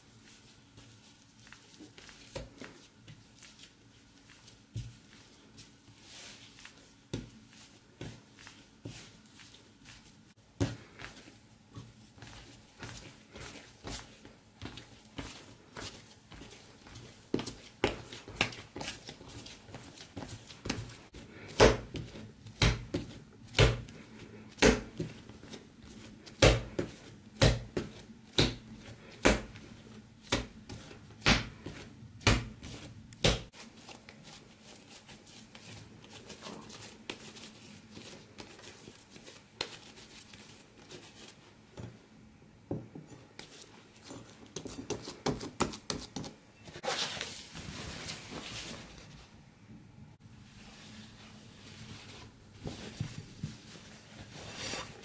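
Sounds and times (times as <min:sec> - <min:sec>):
dough thudding on countertop: 0:21.5 - 0:23.9
cloth rustling: 0:46.6 - 0:49.3, 0:50.3 - 0:55.0.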